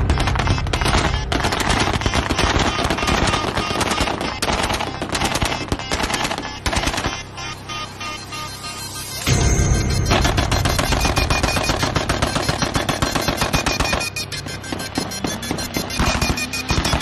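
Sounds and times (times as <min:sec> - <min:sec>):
automatic rifle fire: 0:10.3 - 0:14.2.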